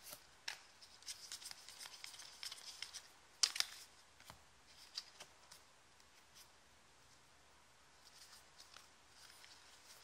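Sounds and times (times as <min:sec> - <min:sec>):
cards rustling and sliding: 0:00.0 - 0:06.5.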